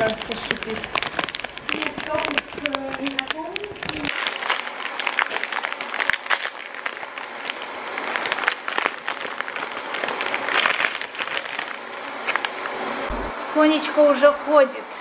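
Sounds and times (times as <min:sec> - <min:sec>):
plastic wrapper crinkling: 0:00.0 - 0:12.8.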